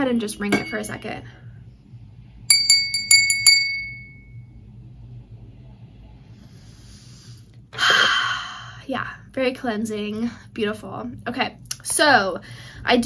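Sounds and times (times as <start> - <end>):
glass hand bell ringing: 0.5 - 0.9, 2.5 - 4.4.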